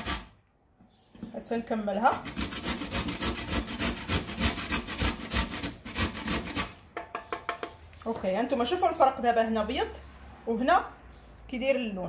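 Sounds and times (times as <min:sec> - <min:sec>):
avocado pit being grated: 0:00.0 - 0:00.4, 0:02.1 - 0:06.8.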